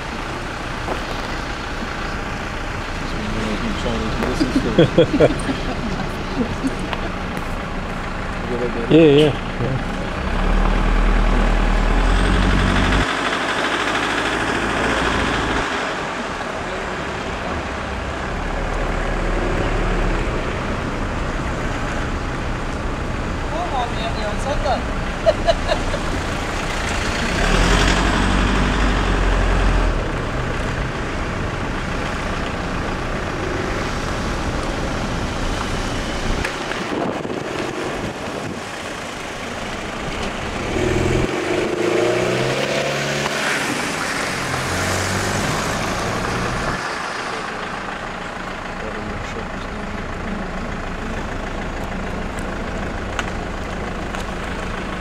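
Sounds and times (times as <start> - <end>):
diesel engines running: 0.0 - 55.0
engine rising and falling in pitch: 9.6 - 20.9, 25.0 - 32.0, 40.0 - 53.3.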